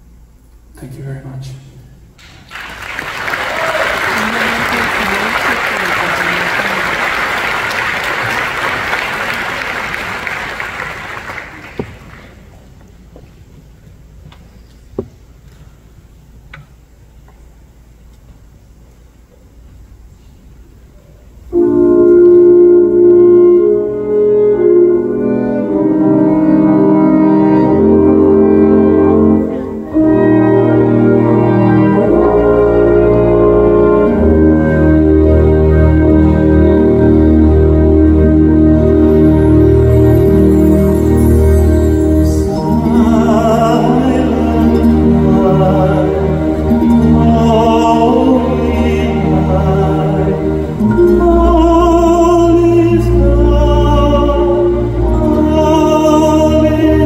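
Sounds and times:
audience applauding: 2.2 - 12.6.

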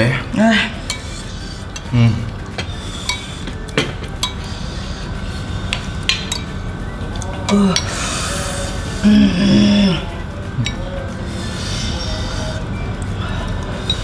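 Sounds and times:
spoons clinking on ceramic bowls: 0.8 - 1.9, 2.5 - 4.6, 6.1 - 6.6.

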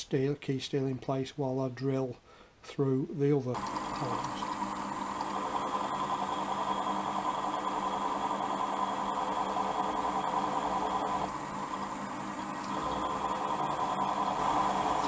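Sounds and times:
drill cutting through steel: 3.6 - 15.0
milling machine motor hum: 3.6 - 15.0.

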